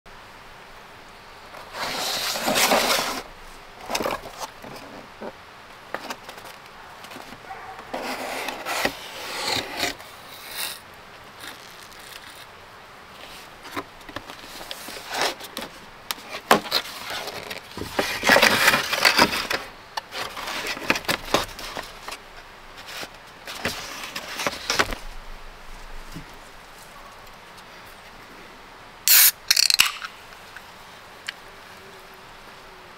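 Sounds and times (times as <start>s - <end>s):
cardboard rubbing and scraping: 1.6s - 5.4s, 6.0s - 10.8s, 13.2s - 25.1s
sharp clicks: 29.1s - 30.2s.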